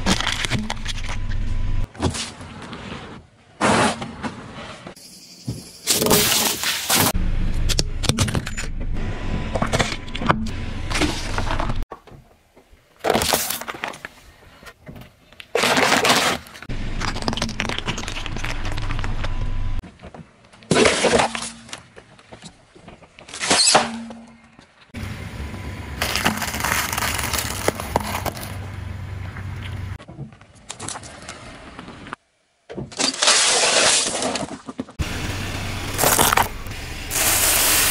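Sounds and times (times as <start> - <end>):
rolling car rumble: 7.2 - 11.9, 16.7 - 19.8, 25.0 - 32.2
tyre crushing objects cracking: 15.4 - 19.4, 26.0 - 28.6, 35.9 - 36.6.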